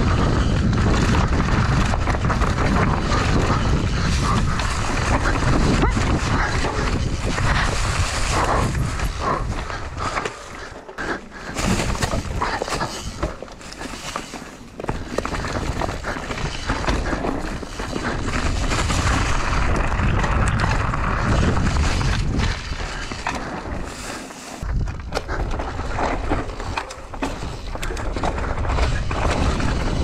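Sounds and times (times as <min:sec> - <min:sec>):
wind buffeting microphone: 0:00.0 - 0:10.2, 0:15.0 - 0:23.6, 0:24.6 - 0:30.0
bike rattling and knocking: 0:00.0 - 0:23.9, 0:24.6 - 0:30.0
tyres crunching over leaves and stones: 0:00.4 - 0:24.8.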